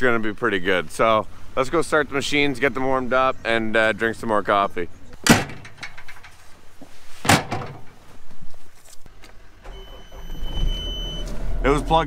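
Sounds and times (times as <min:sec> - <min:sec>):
cab door shutting: 0:05.3 - 0:06.4, 0:07.2 - 0:08.0.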